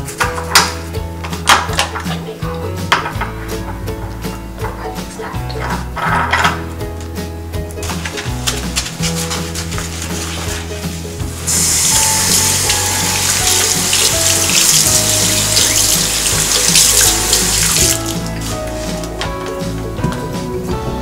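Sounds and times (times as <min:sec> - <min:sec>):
background music: 0:00.0 - 0:21.0
tap running into basin: 0:11.5 - 0:18.4.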